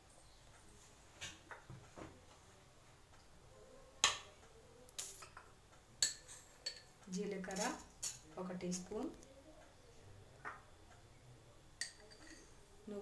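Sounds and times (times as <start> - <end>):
seeds clicking while roasting: 4.0 - 6.2.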